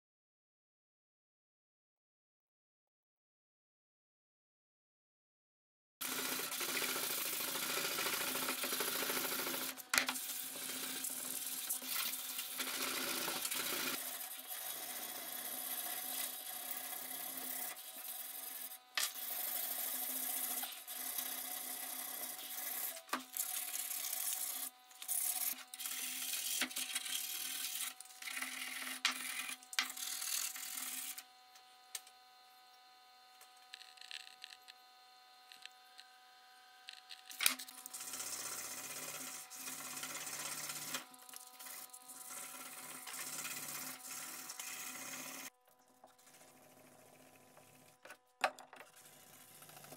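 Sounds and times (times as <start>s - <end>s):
sanding metal blade by hand: 6.3s - 31.2s.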